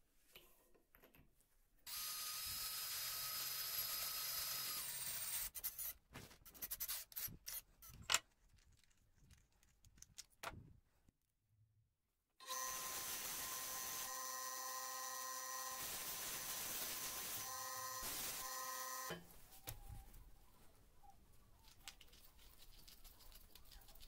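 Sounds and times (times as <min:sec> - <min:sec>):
cordless drill drilling metal: 0:01.9 - 0:05.5, 0:12.4 - 0:19.2.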